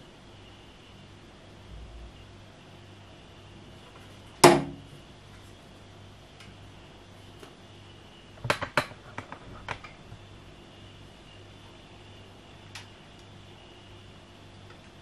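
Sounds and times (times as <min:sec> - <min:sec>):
knocks on metal step stool: 0:04.4 - 0:04.8.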